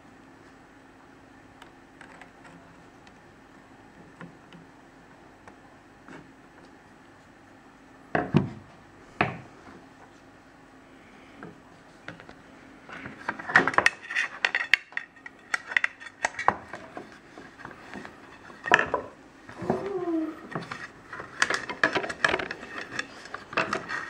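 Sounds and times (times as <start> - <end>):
plastic parts clicking and clattering: 13.0 - 19.1, 20.5 - 24.0.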